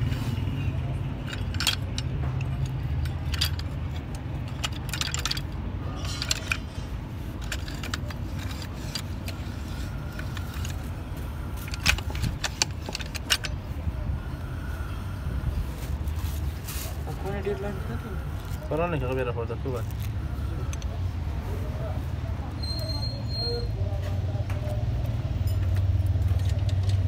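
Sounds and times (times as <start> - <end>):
metal parts clinking: 0.0 - 13.8, 25.3 - 27.0.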